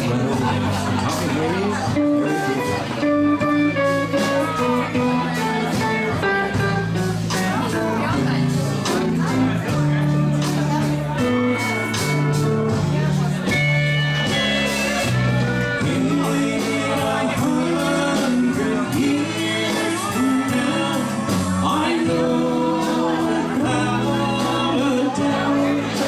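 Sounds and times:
person singing: 0.0 - 8.2, 14.2 - 26.0
drums keeping beat: 0.0 - 26.0
live country band: 0.0 - 26.0.

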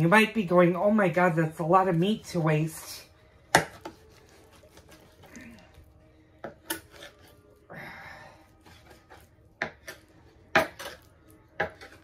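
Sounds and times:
knife scraping and slicing meat: 3.5 - 7.6, 8.4 - 12.0.

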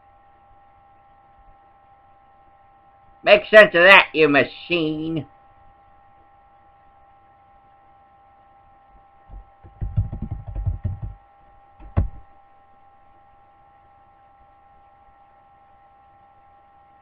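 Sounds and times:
faint electrical hum: 0.0 - 17.0
computer keyboard typing: 9.3 - 11.2, 11.8 - 12.2.

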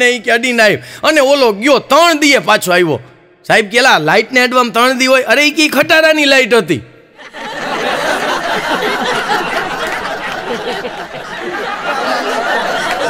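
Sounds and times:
audience laughing: 7.2 - 13.0.

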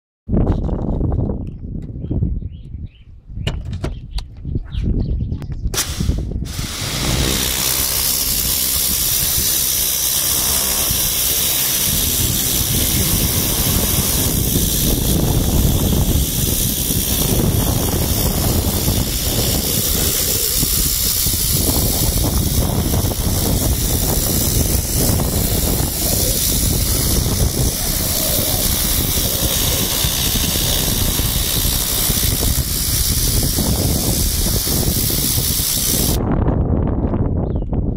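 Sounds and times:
pressure washer jet hissing: 5.8 - 36.2.

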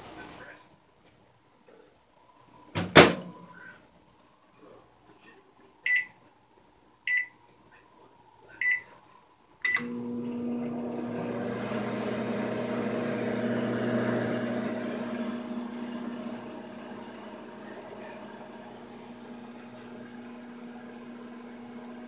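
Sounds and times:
keypad beeps: 5.9 - 6.1, 7.1 - 7.3
microwave hum and fan: 9.7 - 22.0
microwave start click: 9.7 - 22.0.

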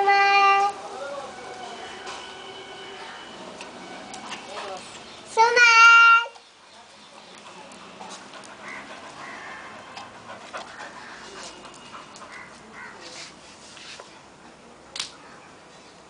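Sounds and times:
dogs panting: 4.0 - 5.1, 6.6 - 13.0.

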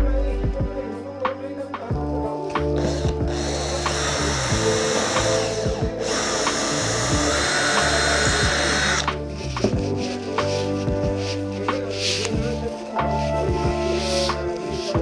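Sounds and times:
background music with beat: 0.0 - 15.0
power drill whining: 2.8 - 9.2.

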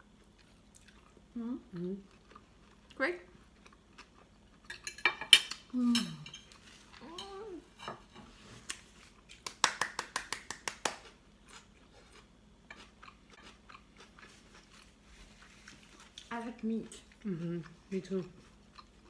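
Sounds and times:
fast hand claps: 9.4 - 11.0.

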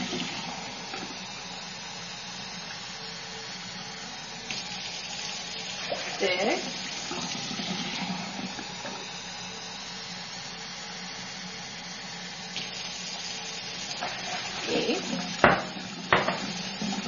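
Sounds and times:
kitchen tap running: 0.0 - 10.0, 12.4 - 17.0.

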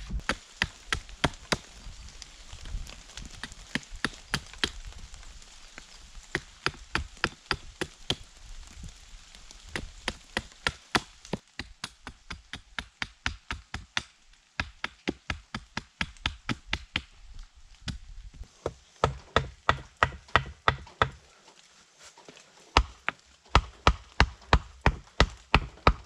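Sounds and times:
hatchet knocking wood: 6.3 - 8.2, 9.7 - 17.1, 18.6 - 21.2, 22.8 - 26.0.

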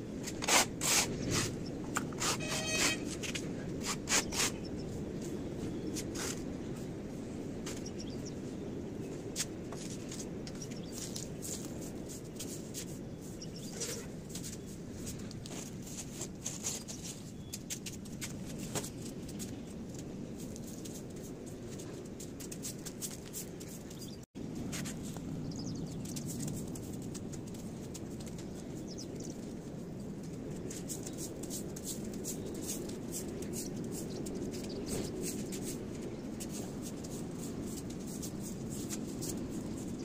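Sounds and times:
scraper blade on concrete: 0.3 - 4.7
broom sweeping concrete: 2.2 - 4.6, 30.8 - 40.0.

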